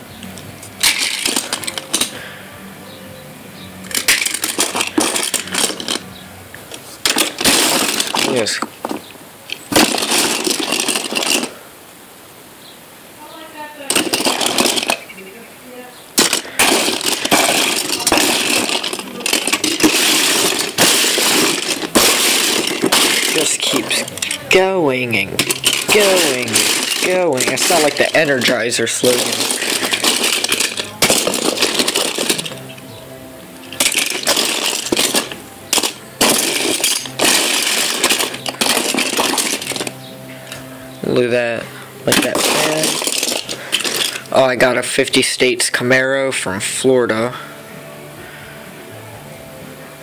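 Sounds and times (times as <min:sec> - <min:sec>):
metal toy cars clattering: 0:00.7 - 0:02.4, 0:03.8 - 0:11.6, 0:13.9 - 0:15.1, 0:16.2 - 0:33.0, 0:33.6 - 0:46.0.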